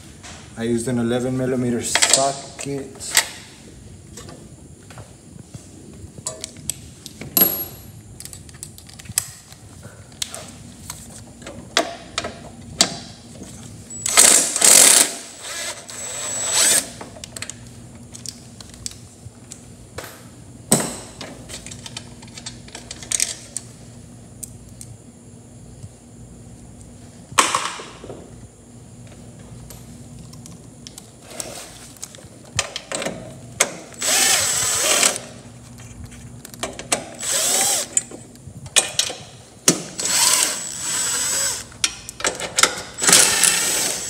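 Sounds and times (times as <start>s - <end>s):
impact driver running: 34.0s - 35.3s, 37.1s - 38.1s, 39.8s - 41.7s, 43.0s - 44.0s.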